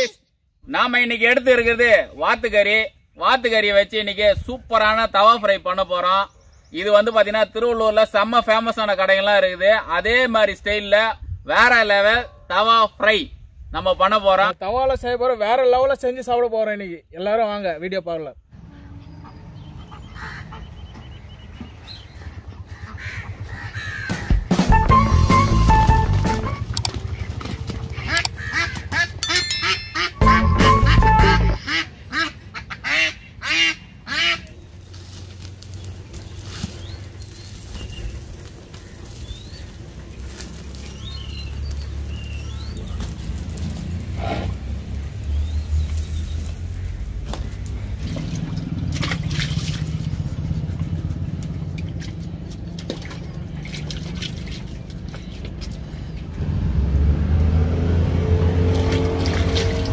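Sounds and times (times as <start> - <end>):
ducks quacking: 19.2 - 21.0, 22.2 - 24.4, 27.0 - 29.2, 30.0 - 34.6
background music: 24.5 - 26.7, 29.2 - 31.6
water splashing in a bucket: 47.3 - 50.5, 51.5 - 55.9, 58.6 - 59.9.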